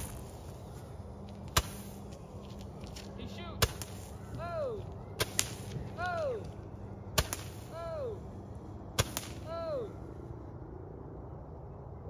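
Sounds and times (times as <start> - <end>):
firework pops: 1.5 - 2.0, 3.6 - 4.1, 5.2 - 5.8, 7.2 - 7.6.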